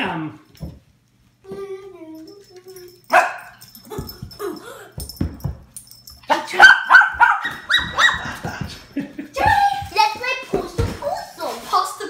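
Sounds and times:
puppy barking and yipping: 0:03.1 - 0:03.7, 0:06.5 - 0:08.6.

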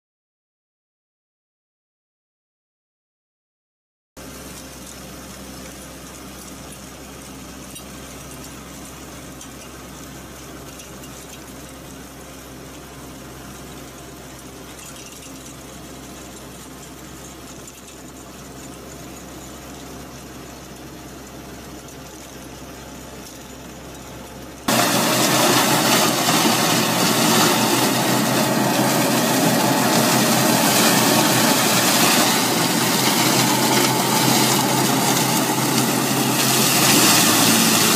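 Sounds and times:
loud tractor engine: 0:12.1 - 0:37.9
flail mower cutting grass: 0:24.7 - 0:37.9
rotor churning soil: 0:24.7 - 0:37.9
small weeder engine running: 0:24.7 - 0:37.9.

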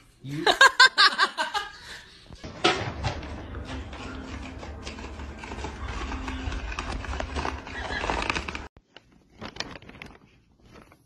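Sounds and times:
plastic bag rustling on carpet: 0:04.8 - 0:11.0.

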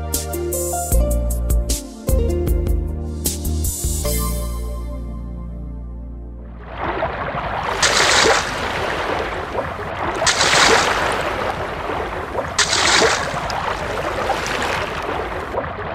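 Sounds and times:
waves washing and splashing: 0:06.6 - 0:15.9.

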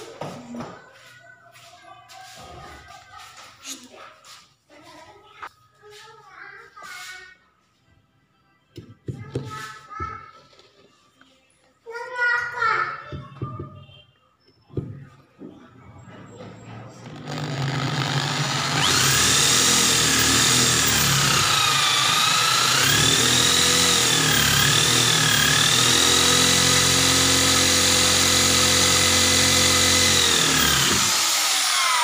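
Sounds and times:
electric drill whining: 0:17.0 - 0:32.0.

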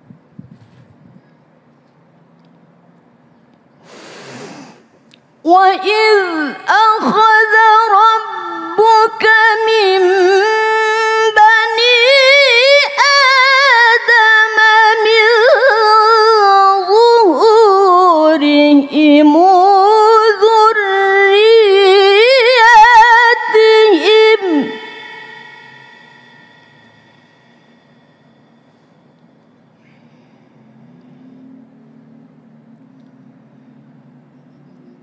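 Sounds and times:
woman reciting melodically: 0:05.4 - 0:27.3.

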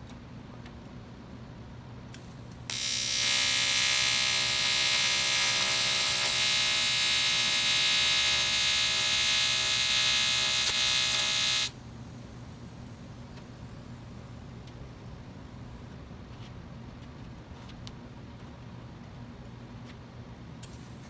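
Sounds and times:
welding arc buzzing: 0:02.2 - 0:11.8.

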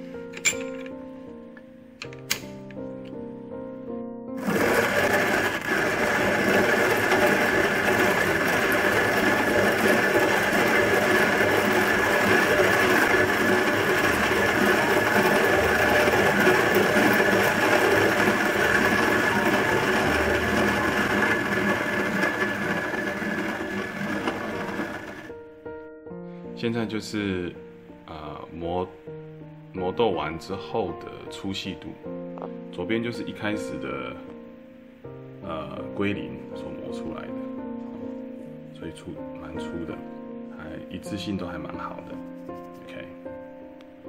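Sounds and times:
hand grinder grinding coffee beans: 0:04.4 - 0:25.3.

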